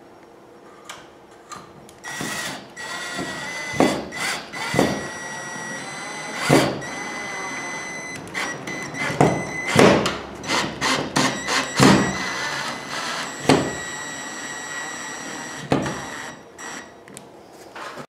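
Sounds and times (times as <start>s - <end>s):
cordless drill driving screw: 2.1s - 9.8s, 10.4s - 16.9s.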